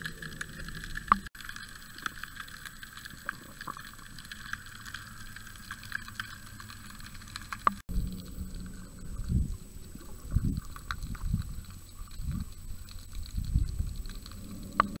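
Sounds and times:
faint clicks: 0.0 - 15.0
underwater water surges: 0.0 - 15.0
low underwater rumble: 3.1 - 15.0.

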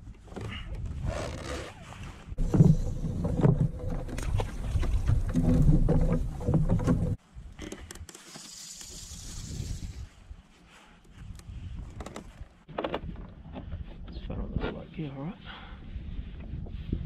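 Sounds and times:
rumbling and bumps on plastic kayak: 0.0 - 8.2, 11.0 - 14.9, 15.6 - 17.0.

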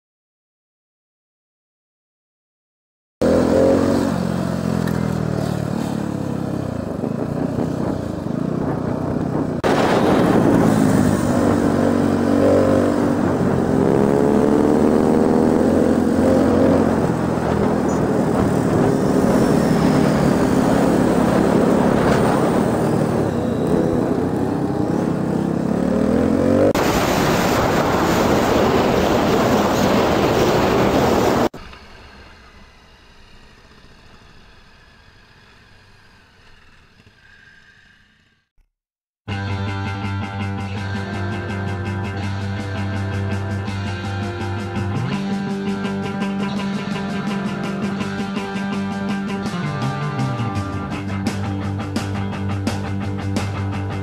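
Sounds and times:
motorcycle engine revving: 3.2 - 38.6, 39.3 - 54.0
wind rushing over microphone: 6.4 - 31.6.

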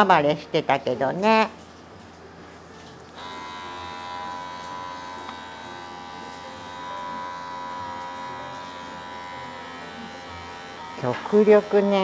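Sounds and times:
electric hair clippers buzzing: 3.2 - 12.0.

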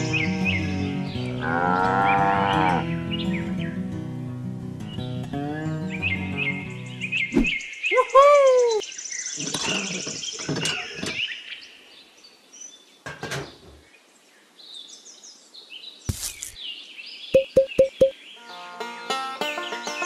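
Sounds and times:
birds chirping and calling: 0.0 - 3.9, 4.9 - 11.8.

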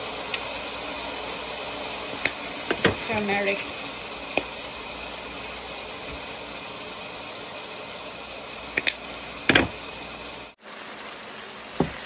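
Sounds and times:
kitchen hiss: 10.0 - 12.0.

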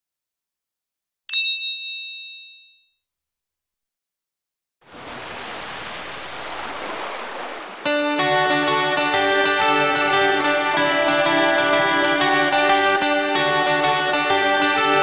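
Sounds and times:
sea water washing over rocks: 4.8 - 8.1.

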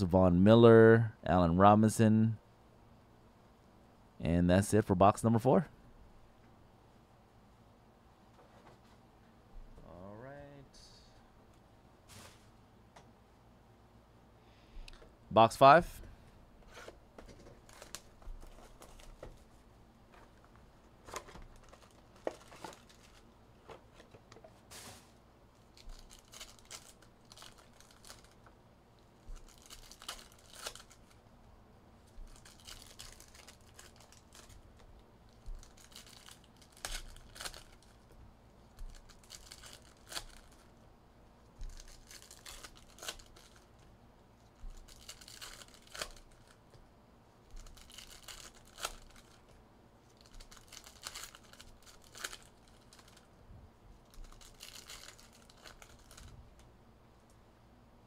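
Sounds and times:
plastic wrapping tearing and crinkling: 17.5 - 19.4, 21.0 - 24.2, 25.6 - 28.5, 29.2 - 31.2, 32.0 - 40.8, 41.6 - 46.6, 47.4 - 53.3, 54.0 - 56.4.

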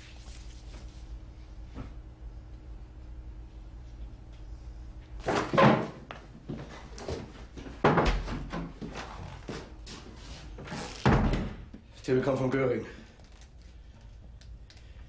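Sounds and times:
door knocks and thuds: 7.8 - 8.8, 11.0 - 11.7.

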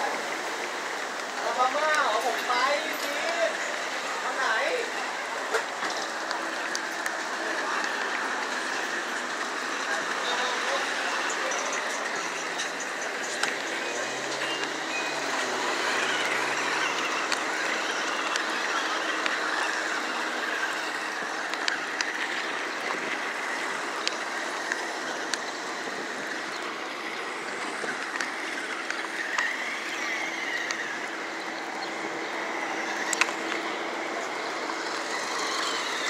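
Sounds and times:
toy wheels rattling over pavement: 0.0 - 36.0
toy car electric motor whir: 0.3 - 36.0
small clicks: 33.0 - 33.6.

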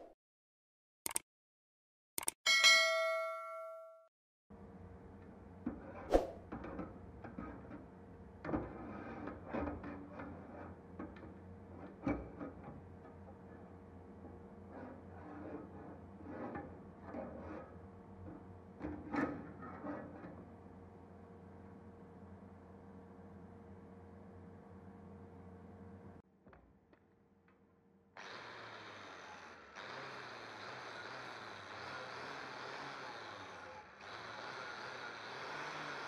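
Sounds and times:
sharp clicks: 2.2 - 2.4.

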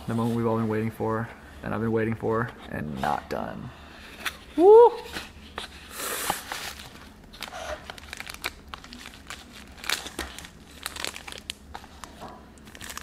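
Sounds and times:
paper packaging crinkling: 6.2 - 13.0.

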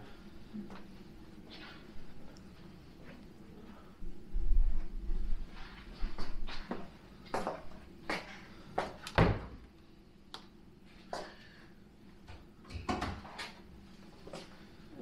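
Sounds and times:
door thump: 9.2 - 9.6.

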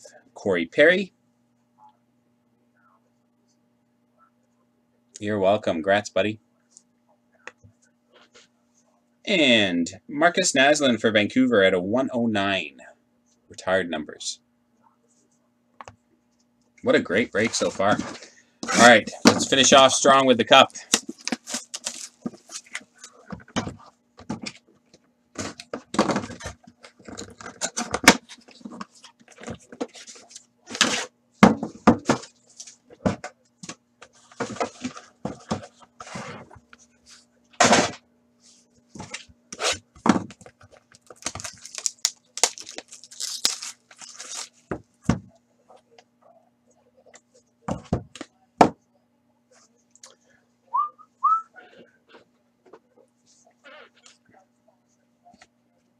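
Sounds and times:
faint low hum: 0.0 - 55.9
plastic wrap crinkling and tearing: 41.0 - 44.7.

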